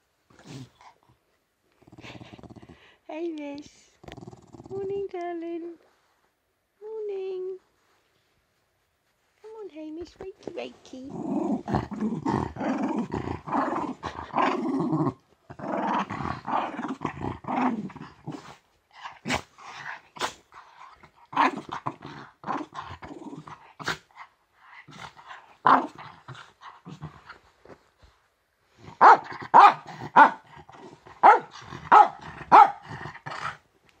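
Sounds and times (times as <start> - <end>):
dog growling: 1.8 - 2.9, 4.0 - 4.8, 11.0 - 24.1, 28.8 - 33.6
dog barking: 29.0 - 30.4, 31.2 - 32.8.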